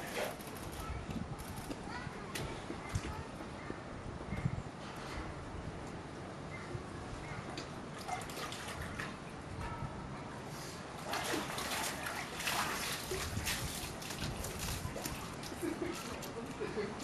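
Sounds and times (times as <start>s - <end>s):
water splashing: 7.9s - 9.3s, 11.0s - 16.3s.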